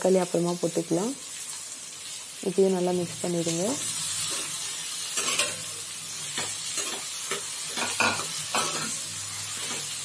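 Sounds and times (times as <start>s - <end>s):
vegetables sizzling in oil: 0.0s - 10.0s
metal spoon scraping a pan: 3.9s - 10.0s.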